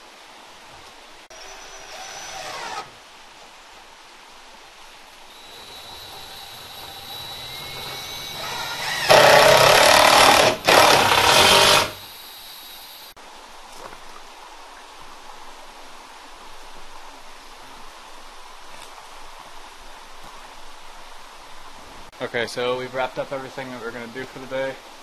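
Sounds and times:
power tool whining: 1.3 - 3.0, 5.3 - 13.1.

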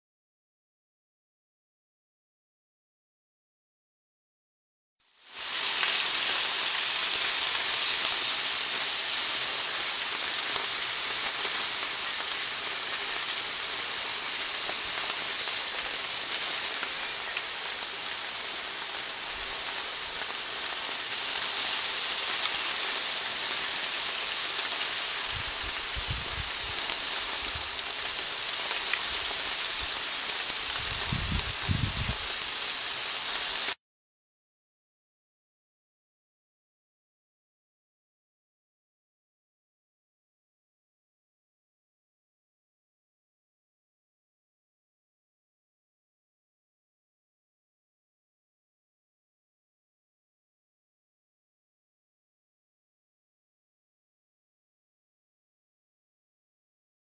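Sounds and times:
steaks sizzling on a grill: 5.1 - 33.8.

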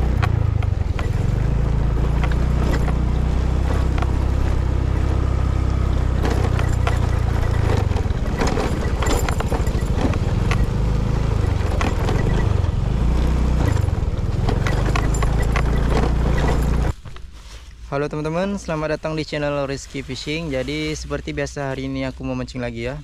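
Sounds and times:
scooter engine hum: 0.0 - 17.2
knocks and rattles over bumps: 0.0 - 17.4.

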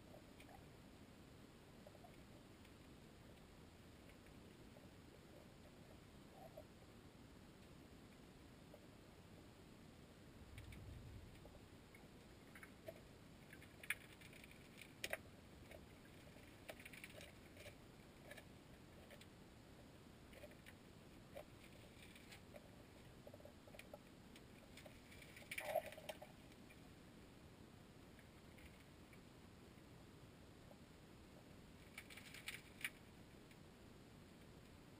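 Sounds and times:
underwater clicks and ticks: 0.1 - 0.7, 10.6 - 19.4, 20.3 - 26.8, 28.2 - 29.2, 31.8 - 33.6.

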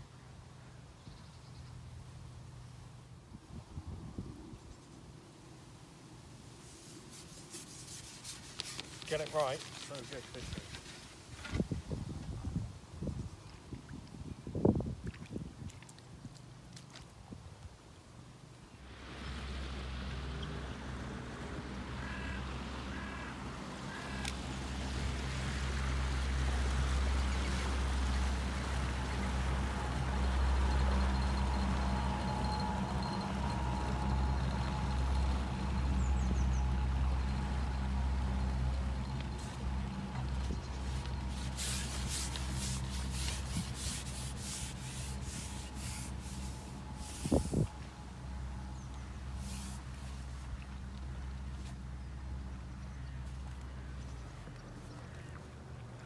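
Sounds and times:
fishing pole rasping through hands: 6.8 - 9.8, 40.8 - 47.7
boat engine droning: 18.8 - 56.0.

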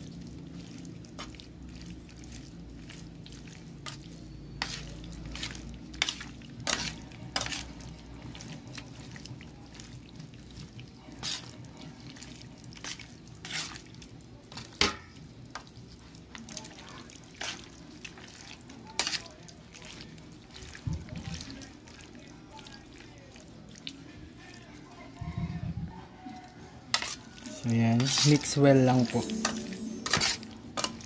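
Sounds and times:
squishy raw meat: 0.0 - 14.8, 15.7 - 25.2.

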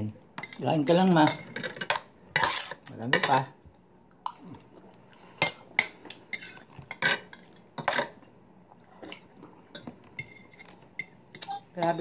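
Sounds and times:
cutlery clinking on bowls: 0.4 - 3.5, 5.4 - 8.2, 9.1 - 12.0.

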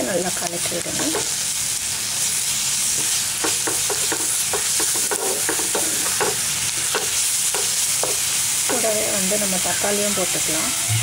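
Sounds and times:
food sizzling in oil: 0.0 - 11.0
spatula scraping and tapping pan: 0.7 - 1.3, 3.0 - 8.9.

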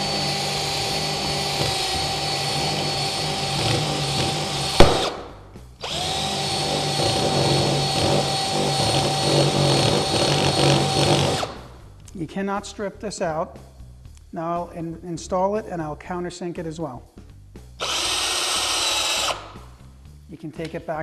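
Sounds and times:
cordless drill running: 0.0 - 5.2, 5.8 - 11.6, 17.8 - 19.6.

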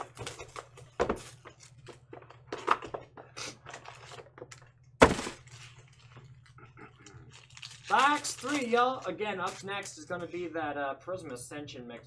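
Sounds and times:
cardboard and foil rustling: 3.6 - 6.4, 7.3 - 9.9.

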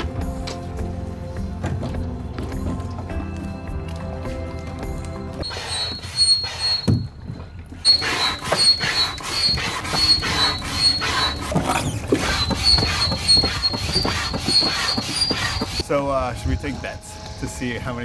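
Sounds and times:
hand pump piston squeaking: 5.4 - 15.8.

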